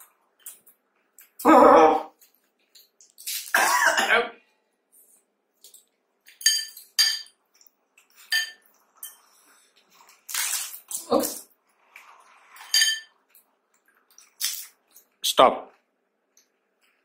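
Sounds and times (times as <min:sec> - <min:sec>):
dishes clinking: 0:06.2 - 0:09.4, 0:12.5 - 0:13.4.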